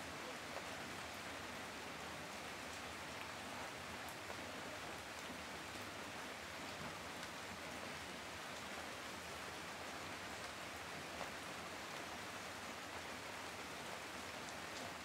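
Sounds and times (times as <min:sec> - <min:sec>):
steady rain hiss: 0:00.0 - 0:15.0
faint raindrop ticks: 0:02.2 - 0:05.9, 0:06.5 - 0:08.8, 0:09.7 - 0:15.0.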